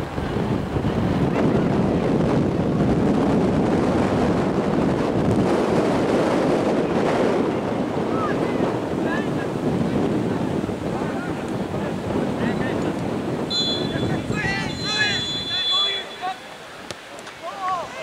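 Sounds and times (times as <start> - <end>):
wind buffeting microphone: 0.0 - 18.0
faint distant calls: 13.5 - 16.9.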